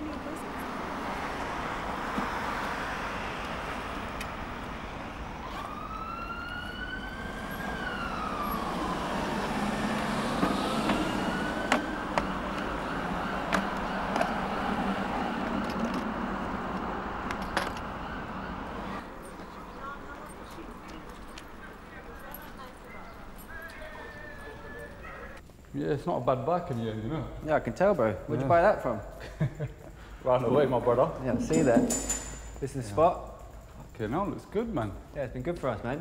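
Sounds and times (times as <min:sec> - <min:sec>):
siren wailing: 0:00.0 - 0:19.6, 0:21.6 - 0:25.4
street traffic noise: 0:00.0 - 0:36.0.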